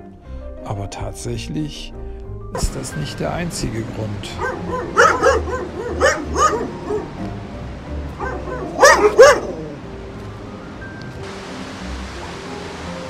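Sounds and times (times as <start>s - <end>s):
background music: 0.0s - 13.0s
dog barking in high yips: 4.4s - 7.1s, 8.2s - 9.7s.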